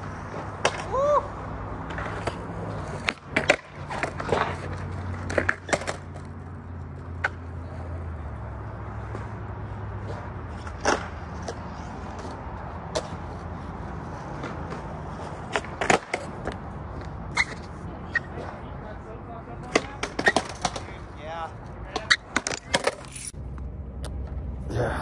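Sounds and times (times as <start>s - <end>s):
skateboard wheels rumbling: 0.0s - 18.7s
skateboard clacking on ground: 0.1s - 1.2s, 1.8s - 7.8s, 10.0s - 13.4s, 14.1s - 18.6s, 19.6s - 23.4s.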